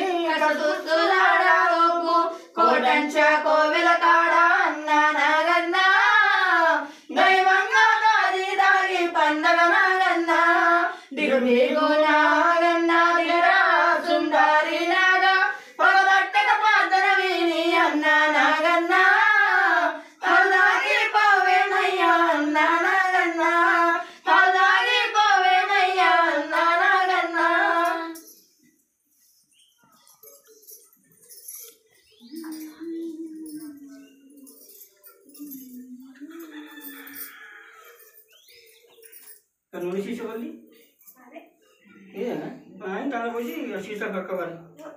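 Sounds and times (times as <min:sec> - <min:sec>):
women singing without instruments: 0:00.0 - 0:28.4, 0:32.2 - 0:37.3.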